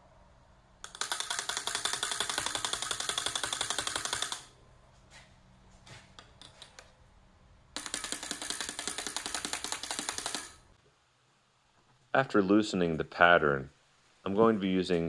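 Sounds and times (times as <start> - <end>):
screwdriver rattling between metal tongs: 0.9 - 4.5.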